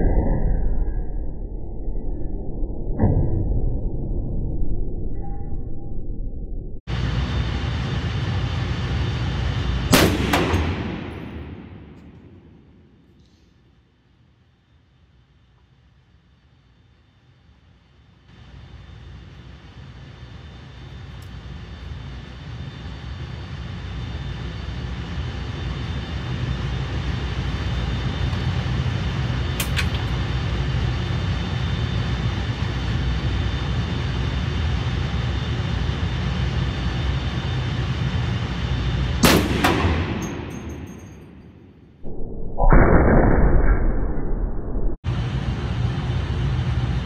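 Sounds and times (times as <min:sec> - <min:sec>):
low rumble: 0:00.0 - 0:13.3, 0:21.3 - 0:47.0
rifle shot indoors: 0:09.9 - 0:13.5, 0:39.2 - 0:41.8.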